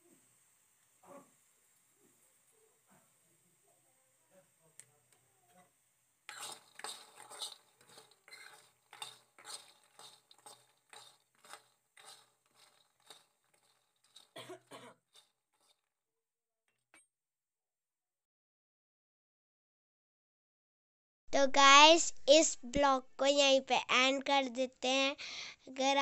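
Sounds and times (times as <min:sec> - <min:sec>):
spoon scraping metal pan: 0:06.3 - 0:15.9.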